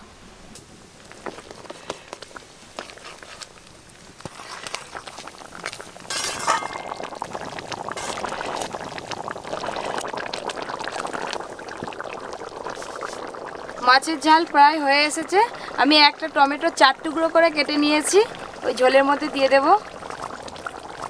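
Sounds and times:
curry boiling and bubbling: 0.5 - 21.0
metal spatula clinking on pan: 6.1 - 7.0.

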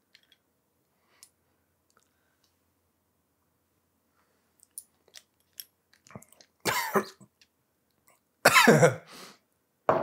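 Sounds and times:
man coughing: 6.7 - 7.2, 8.5 - 9.1.

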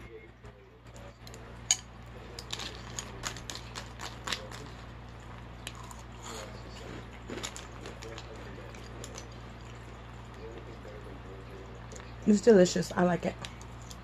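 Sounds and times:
cereal crunching: 2.3 - 10.7.

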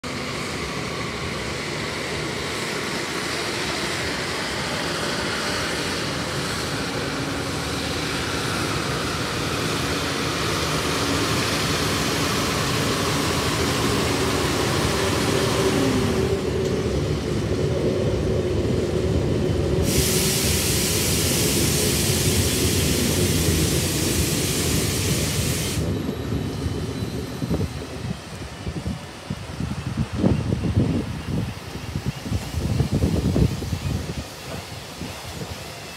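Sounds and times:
steel wheels rumbling on rail: 0.0 - 35.9
high hiss: 19.8 - 26.0.

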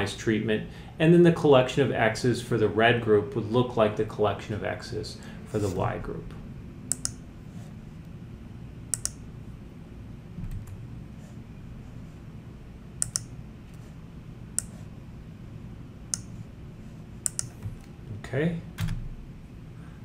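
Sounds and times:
low room hum: 0.0 - 20.0
computer key clicks: 6.9 - 7.2, 8.9 - 9.2, 13.0 - 13.3, 17.2 - 17.6.

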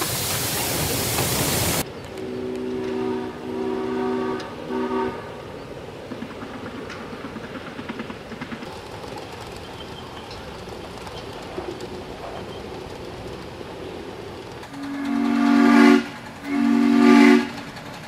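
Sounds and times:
train wheels rattling on track: 0.0 - 18.0
multi-note train horn: 2.2 - 5.3, 14.8 - 17.6.

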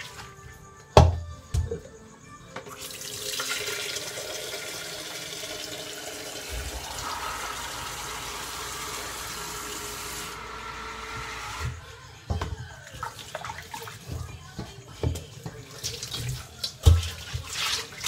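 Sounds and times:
tap water filling plastic pitcher: 2.6 - 10.4, 12.3 - 18.0.

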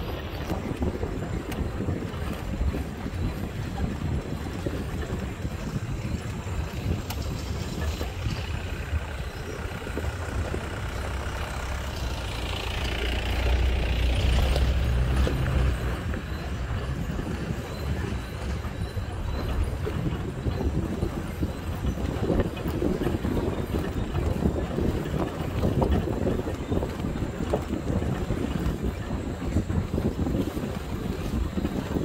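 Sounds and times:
vehicle engine and tyres rumbling: 0.0 - 32.0.

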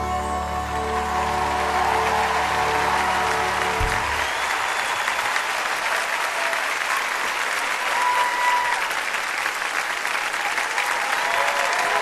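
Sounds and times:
waltz music chord: 0.0 - 4.2
audience applauding and cheering: 0.0 - 12.0
low thud: 3.8 - 4.3.

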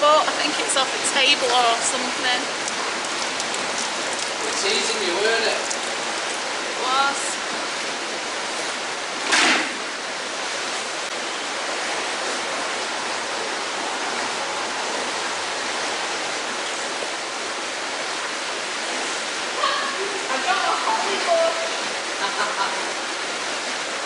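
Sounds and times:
flowing canal water: 0.0 - 24.0
short water splash: 9.1 - 10.0.

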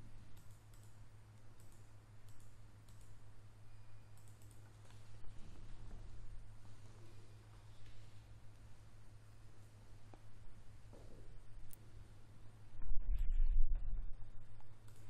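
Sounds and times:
steady low hum: 0.0 - 15.0
faint computer mouse clicks: 0.3 - 3.2, 4.1 - 5.1, 14.6 - 15.0.

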